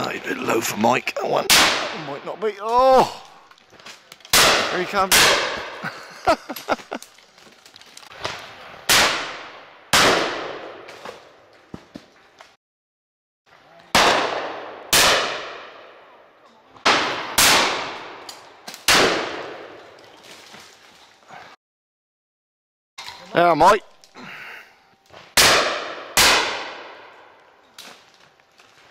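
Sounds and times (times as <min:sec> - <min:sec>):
shotgun shots: 0:01.5 - 0:02.2, 0:04.3 - 0:05.8, 0:08.9 - 0:10.9, 0:13.9 - 0:16.0, 0:16.8 - 0:19.8, 0:25.4 - 0:27.1.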